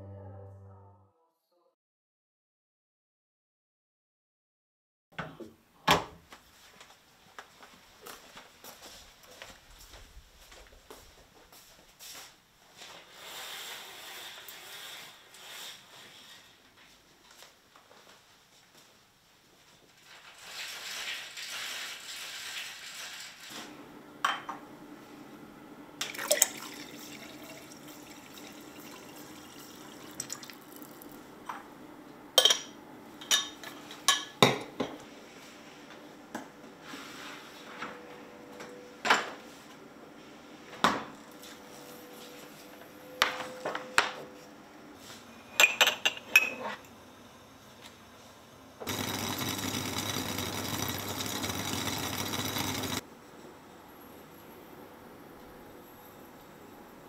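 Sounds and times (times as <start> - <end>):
dishes clinking and knocking: 32.4 - 35.0, 45.6 - 46.8.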